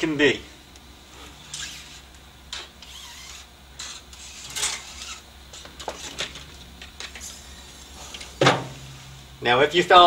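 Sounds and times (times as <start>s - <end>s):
wire sliding through liner: 1.4s - 2.1s, 2.8s - 6.4s.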